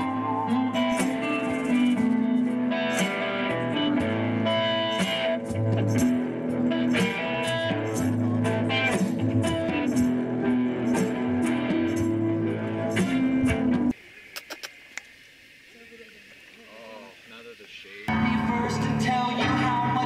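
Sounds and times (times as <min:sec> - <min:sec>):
bass guitar: 0:00.0 - 0:13.9, 0:18.1 - 0:20.0
electric guitars: 0:00.0 - 0:14.7, 0:18.1 - 0:20.0.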